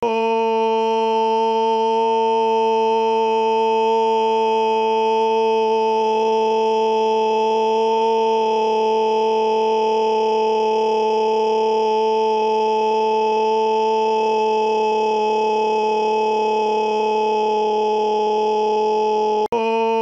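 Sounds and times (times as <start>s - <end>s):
person screaming: 12.9s - 20.0s.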